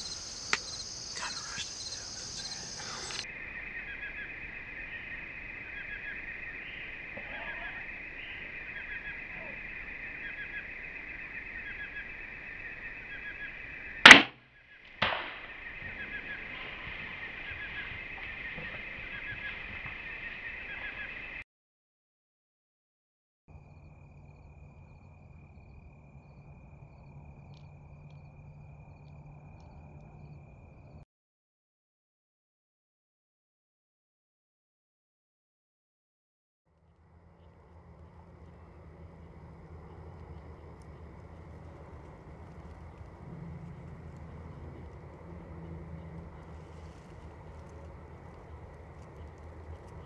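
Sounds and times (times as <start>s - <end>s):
crickets trilling: 0.0s - 14.0s, 14.7s - 21.4s, 23.6s - 31.0s, 36.9s - 50.0s
sharp crack of archery shot: 14.0s - 14.4s, 15.0s - 15.7s.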